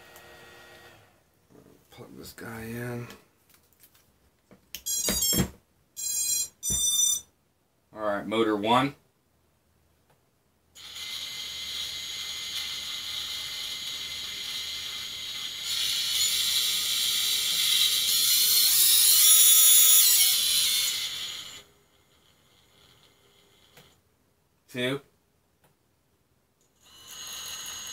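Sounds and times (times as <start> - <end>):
electric motor whine: 0.0 - 1.1
crunchy motor bearings: 10.8 - 21.7.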